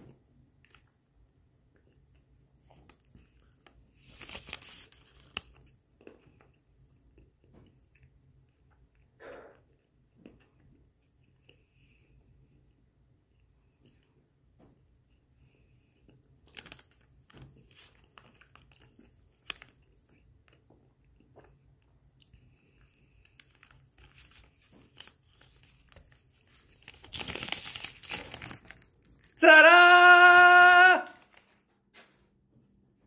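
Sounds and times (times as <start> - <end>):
plastic wrapper crinkling: 2.9 - 5.6, 16.4 - 19.8, 23.2 - 29.4, 30.7 - 31.6.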